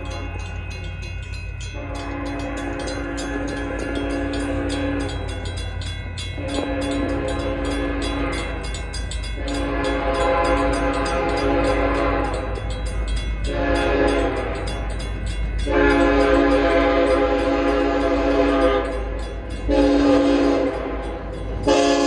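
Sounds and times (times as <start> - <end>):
railroad crossing bell ringing: 0.0 - 22.0
locomotive air horn blasts: 1.7 - 5.3, 6.4 - 8.8, 9.4 - 12.6, 13.5 - 14.7, 15.6 - 22.0.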